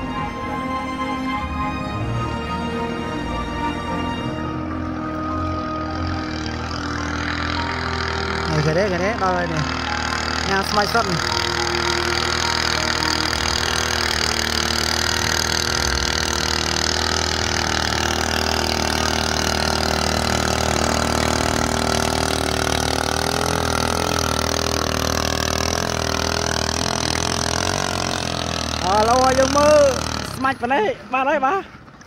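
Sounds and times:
motorboat engine running: 0.0 - 32.0.

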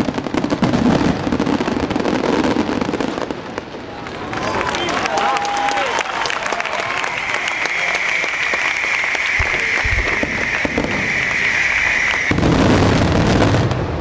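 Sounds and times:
low fireworks booms: 0.0 - 4.1, 6.8 - 14.0
fireworks crackling and banging: 0.0 - 14.0
fireworks hiss: 7.0 - 13.7.

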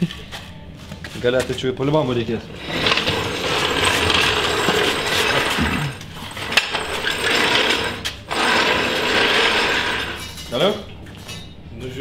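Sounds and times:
tool rattling hiss: 2.6 - 10.4.

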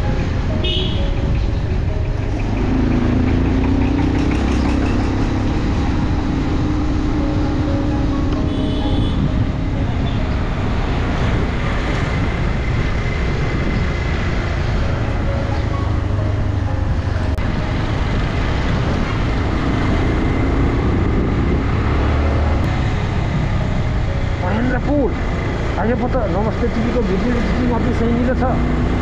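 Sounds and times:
wind on microphone: 0.0 - 25.8
motorcycle engine running: 0.0 - 29.0.

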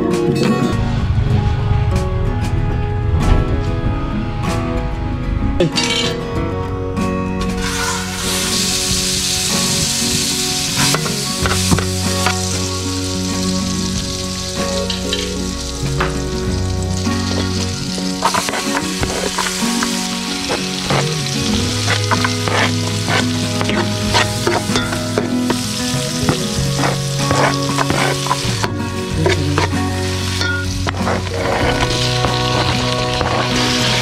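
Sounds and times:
fat sizzling in a pan: 7.5 - 34.0
metal spoon scraping a pan: 7.6 - 12.7, 17.2 - 34.0.

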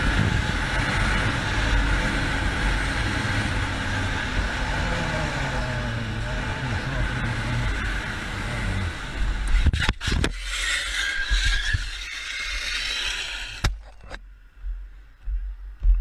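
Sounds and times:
motorcycle engine running: 0.0 - 9.6
wind noise: 0.0 - 10.4
scraping along tarmac: 0.0 - 13.6.

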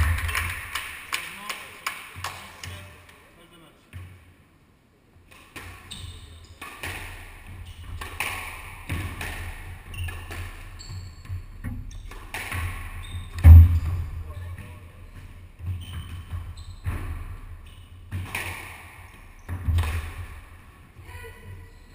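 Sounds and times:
squash ball smacking: 5.3 - 6.0, 6.6 - 10.8, 11.6 - 14.8, 15.6 - 20.6
loud low thud: 13.4 - 14.3.

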